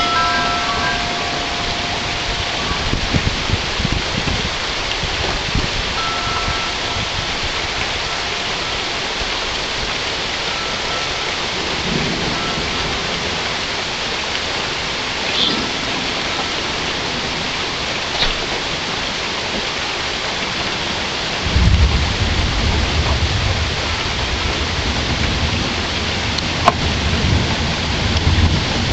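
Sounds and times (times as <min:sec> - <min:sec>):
rolling thunder: 0:00.0 - 0:19.2, 0:21.4 - 0:28.9
steady rain falling: 0:00.0 - 0:28.9.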